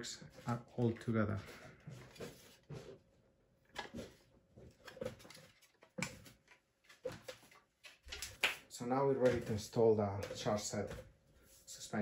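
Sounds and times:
faint knocks and scrapes: 0.0s - 7.7s.

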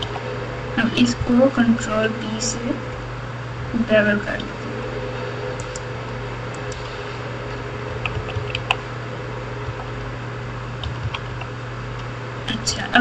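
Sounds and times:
steady low hum: 0.0s - 13.0s
computer keyboard clicks: 8.0s - 8.8s, 10.8s - 11.5s.

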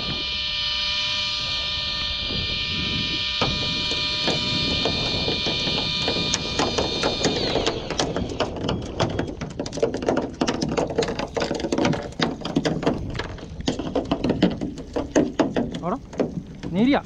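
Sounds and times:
fishing reel whine: 0.0s - 9.4s.

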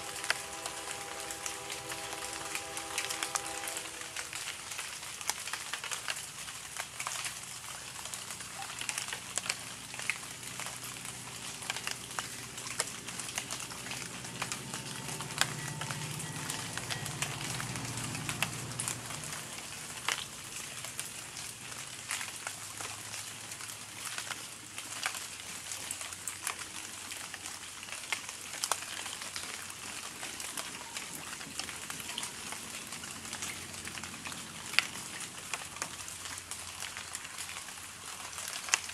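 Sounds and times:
raindrops striking close by: 0.0s - 38.9s
steady rain falling: 0.0s - 38.9s
low rumble: 11.0s - 20.7s.

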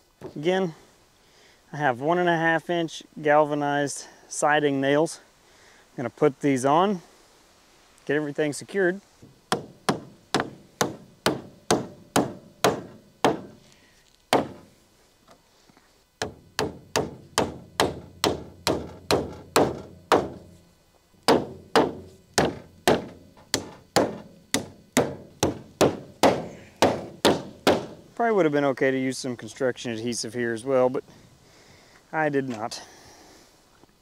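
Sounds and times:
hammer striking nails into wood: 9.5s - 13.6s, 14.3s - 14.6s, 16.2s - 20.5s, 21.3s - 28.0s.

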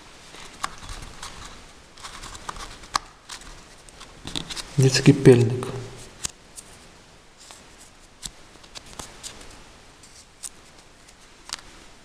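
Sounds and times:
small parts clicking on paper: 0.4s - 4.6s.

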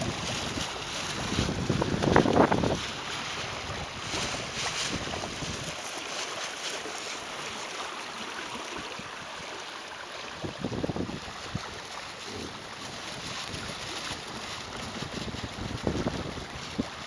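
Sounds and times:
wind rumble on microphone: 0.0s - 5.8s, 10.3s - 17.0s
water rushing along a hull: 0.0s - 17.0s.

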